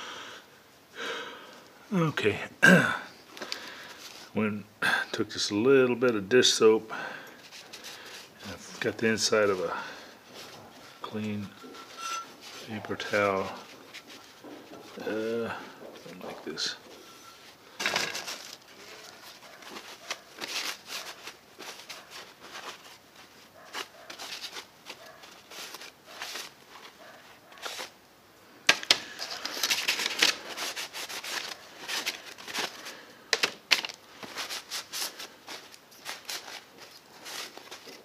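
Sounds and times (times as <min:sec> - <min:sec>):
paper towel rustling: 0:07.4 - 0:28.0, 0:29.1 - 0:33.1, 0:33.7 - 0:38.0.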